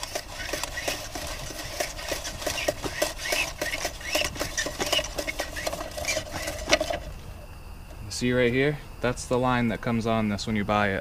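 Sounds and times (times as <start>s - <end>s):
clothesline reel clicking: 0.0s - 7.1s
faint squeaks of line: 0.0s - 8.1s.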